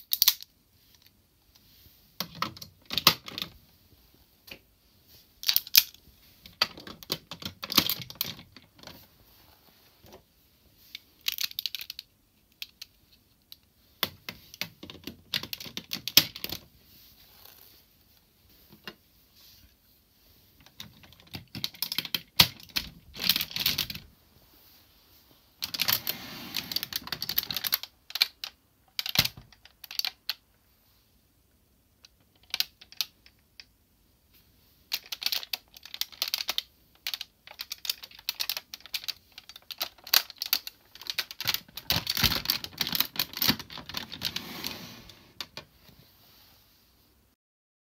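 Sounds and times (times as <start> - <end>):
plastic toy parts clicking: 0.0 - 1.1, 5.4 - 8.6, 11.2 - 16.6, 20.7 - 24.0, 26.6 - 30.4, 32.0 - 33.7, 34.9 - 44.3.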